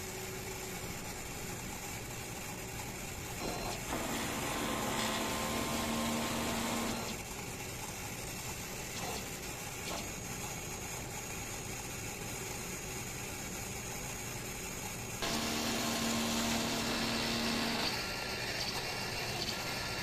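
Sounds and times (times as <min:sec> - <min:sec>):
printer mechanical whir: 0:00.0 - 0:20.0
loud motor whir with hum: 0:03.3 - 0:07.4, 0:15.2 - 0:20.0.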